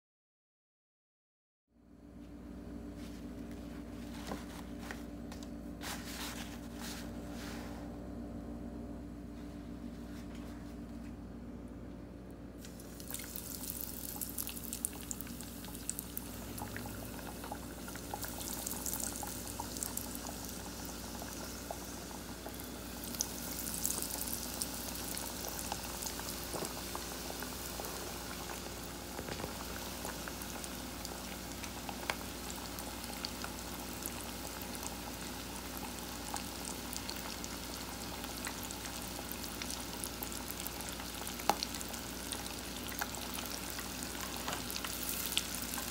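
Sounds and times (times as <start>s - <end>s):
fish sizzling in hot fat: 12.6s - 45.9s.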